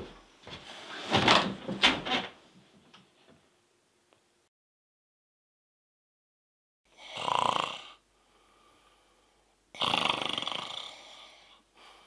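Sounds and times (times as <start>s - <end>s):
man snoring: 6.9s - 8.0s, 9.7s - 11.6s.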